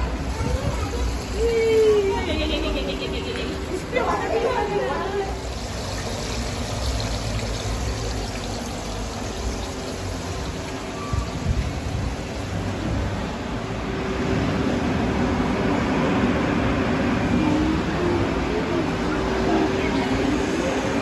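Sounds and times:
water trickling and bubbling: 5.4 - 12.8.

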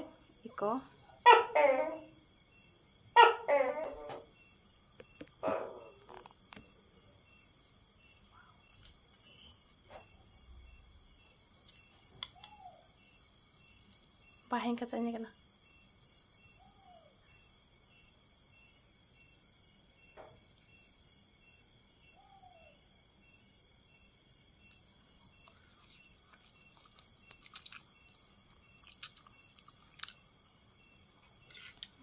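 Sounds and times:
crickets chirring: 0.0 - 32.0
fork clicks and chewing: 24.6 - 30.5, 31.2 - 32.0.

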